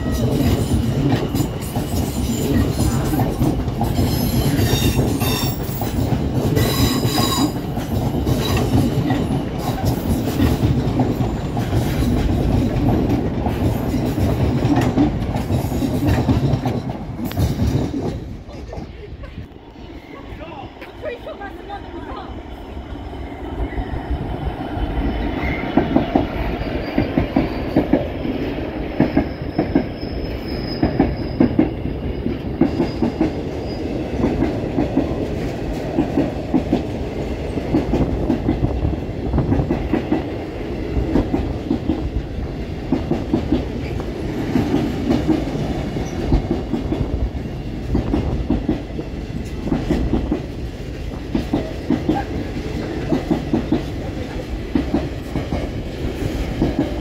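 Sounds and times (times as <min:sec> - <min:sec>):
train wheels clickety-clack: 0:00.0 - 0:19.6, 0:24.6 - 0:57.0
high wheel squeal: 0:04.1 - 0:05.8, 0:06.6 - 0:07.6, 0:29.1 - 0:31.6.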